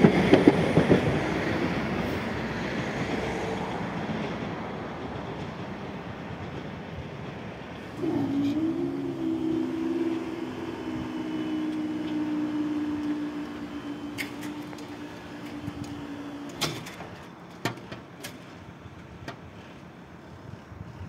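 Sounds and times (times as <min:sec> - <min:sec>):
mechanical clunk: 0:12.9 - 0:18.5
sharp clicks and knocks: 0:14.1 - 0:18.6.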